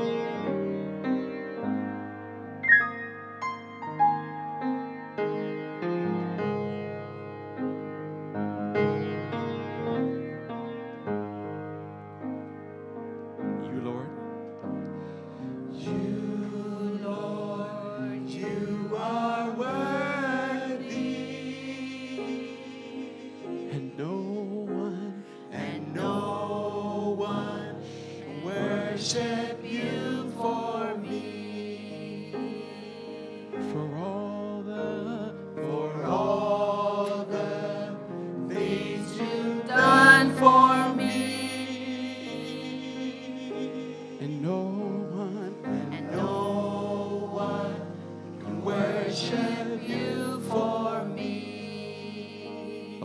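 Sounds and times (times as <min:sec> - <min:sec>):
piano accompaniment: 0:00.0 - 0:53.0
group singing gospel song: 0:15.7 - 0:53.0.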